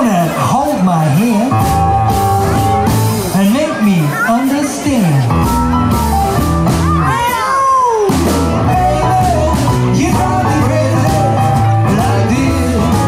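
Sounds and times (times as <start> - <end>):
rock and roll band with singing: 0.0 - 13.0
high sliding wail: 6.1 - 9.5.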